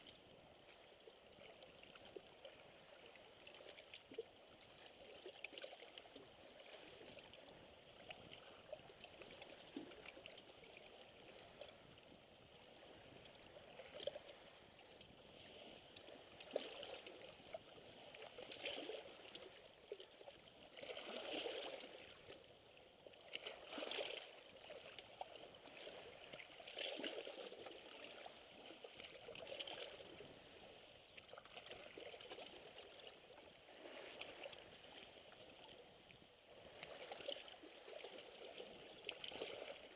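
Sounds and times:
small waves lapping on rocks: 0.0 - 39.9.

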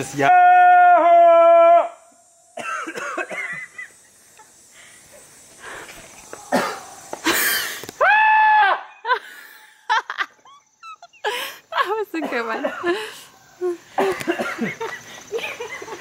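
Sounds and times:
people laughing: 12.9 - 16.0.

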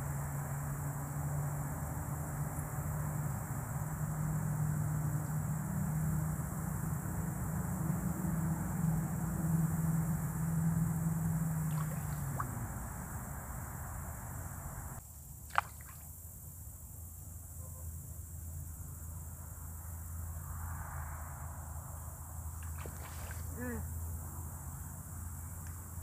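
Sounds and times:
steady low hum: 0.0 - 15.1
small plop: 11.6 - 12.6, 15.5 - 16.0, 22.6 - 23.5.

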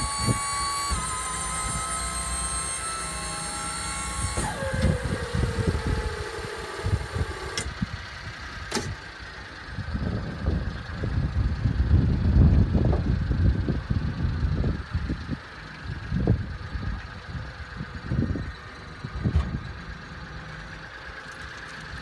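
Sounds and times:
whine with steady tones: 0.0 - 10.3
small truck engine idling: 0.0 - 22.0.

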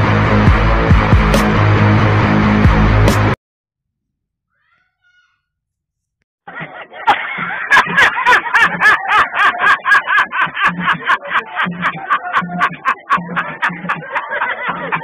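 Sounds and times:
man laughing hysterically: 6.5 - 15.0.

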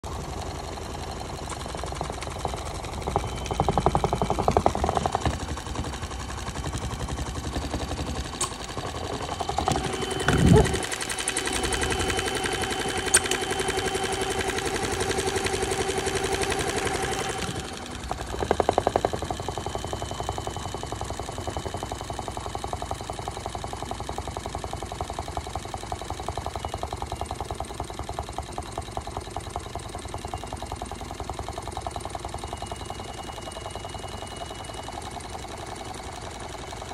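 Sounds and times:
toy washing machine motor spinning: 0.0 - 36.9
steady whine: 0.1 - 20.8.

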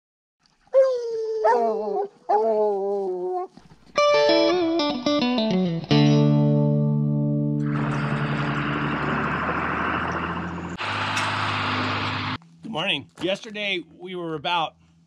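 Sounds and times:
electric guitar run and chord: 4.0 - 9.7.

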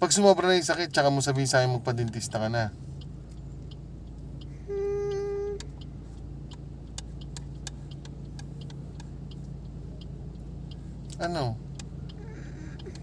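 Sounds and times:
car cabin hum: 0.0 - 13.0
faint irregular ticks: 0.0 - 13.0
flat-pitched tone: 4.7 - 5.7.

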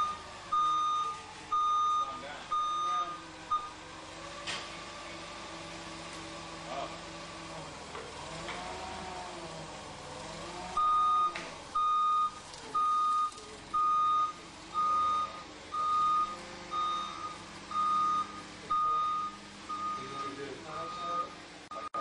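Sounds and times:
electronic warning beeper: 0.0 - 3.8, 10.8 - 22.0.

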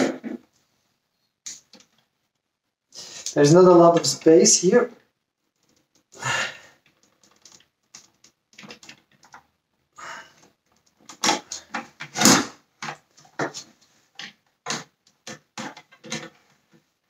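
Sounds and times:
scrapes and clicks on plastic: 10.4 - 16.9.

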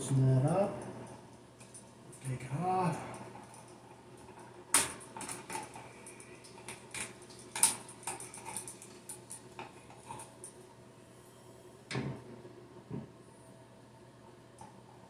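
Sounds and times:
light clicks and clinks: 0.1 - 10.6.

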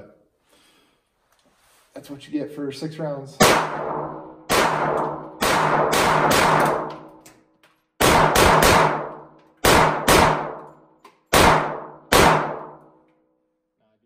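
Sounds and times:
pistol shots: 3.4 - 7.2, 8.0 - 10.7, 11.3 - 12.8.

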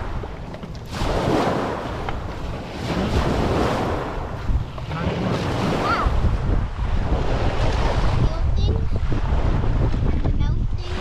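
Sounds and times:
wind rumbling on microphone: 0.0 - 11.0
small waves on pebble beach: 0.8 - 9.9.

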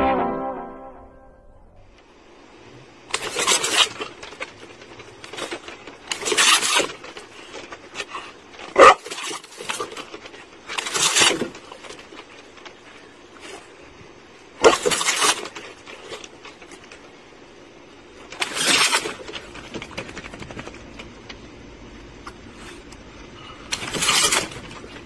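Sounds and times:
short sharp sound: 0.0 - 1.9.

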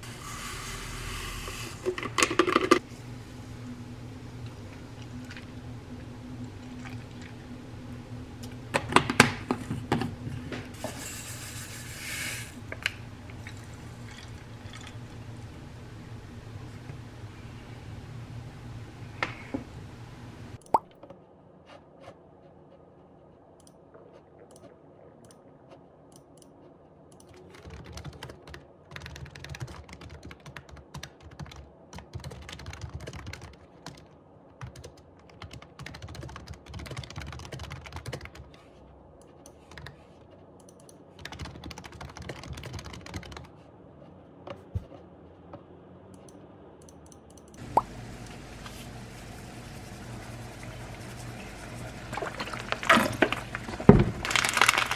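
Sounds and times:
computer keyboard typing: 27.1 - 38.6, 39.3 - 43.5.

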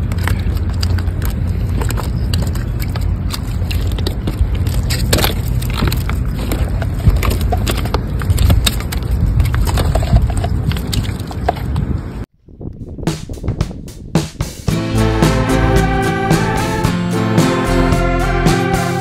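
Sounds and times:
wind buffeting microphone: 0.0 - 14.7.

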